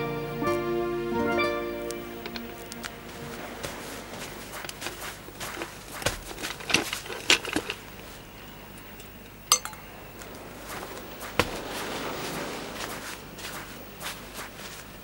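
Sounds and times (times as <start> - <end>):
dishes knocking and clinking: 9.5 - 9.9
glass clink ringing: 9.5 - 9.9.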